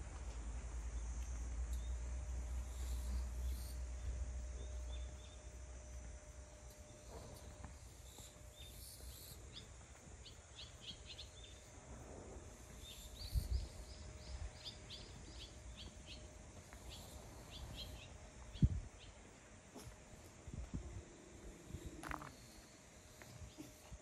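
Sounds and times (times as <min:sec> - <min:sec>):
faint outdoor background noise: 0:00.0 - 0:24.0
small bird chirping: 0:07.8 - 0:11.7, 0:12.8 - 0:19.2.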